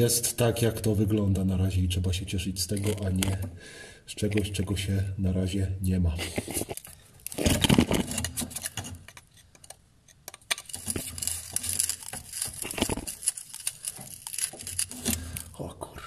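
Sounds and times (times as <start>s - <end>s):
rustling and scraping: 2.6s - 3.6s, 6.2s - 15.7s.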